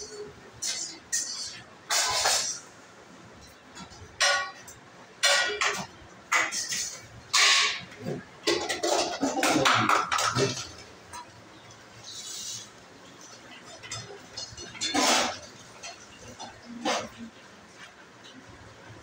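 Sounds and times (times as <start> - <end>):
clinking and rustling handling: 3.5 - 11.3.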